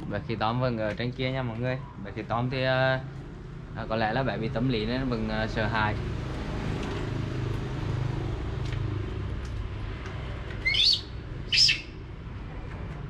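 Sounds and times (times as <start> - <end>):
baby monkey squeaking: 10.6 - 12.0.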